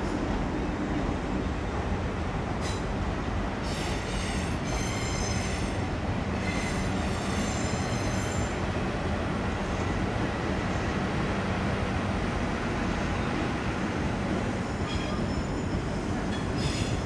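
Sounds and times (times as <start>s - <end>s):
train low rumble: 0.0s - 17.0s
train wheels squealing: 3.6s - 5.8s, 6.4s - 8.6s, 14.5s - 17.0s.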